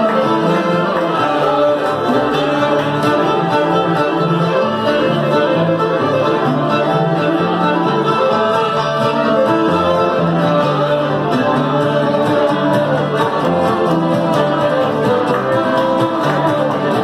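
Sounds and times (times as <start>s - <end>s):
fiddles playing melody: 0.0s - 17.0s
guitar: 0.0s - 17.0s
upright bass: 0.0s - 17.0s.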